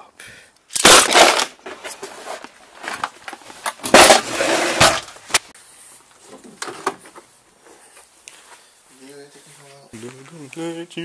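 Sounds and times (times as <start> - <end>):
tools rattling scrape: 3.7 - 5.1.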